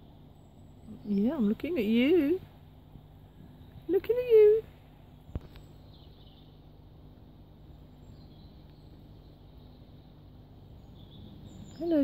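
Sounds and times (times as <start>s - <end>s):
steady low hum: 0.0s - 12.0s
distant bird chirps: 3.4s - 12.0s.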